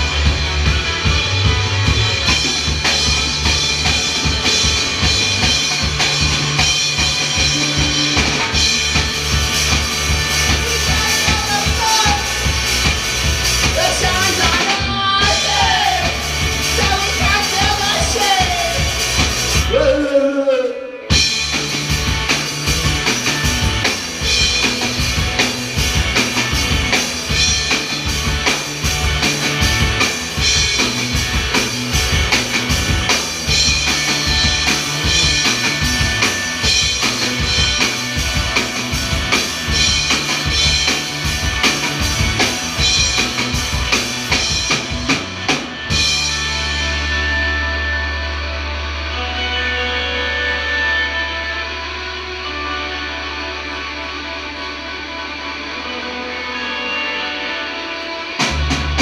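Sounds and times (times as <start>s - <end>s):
drum kit beat: 0.0s - 19.9s, 21.1s - 47.3s
amplified electric guitars: 0.0s - 59.0s.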